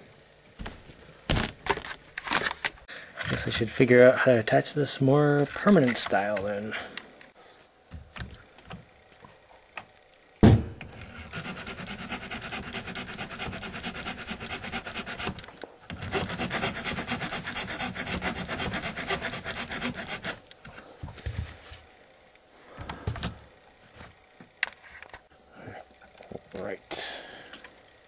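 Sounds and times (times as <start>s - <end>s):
electric motor driving plastic gears: 10.9s - 20.5s.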